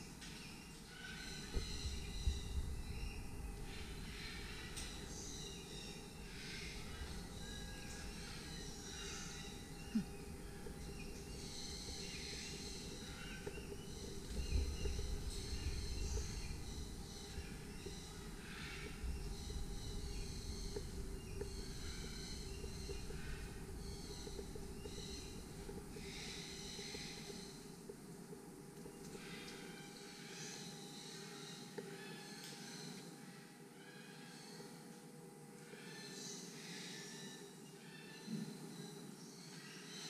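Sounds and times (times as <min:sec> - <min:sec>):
birds chirping and calling: 0:00.0 - 0:27.7
low rumble: 0:01.5 - 0:26.1.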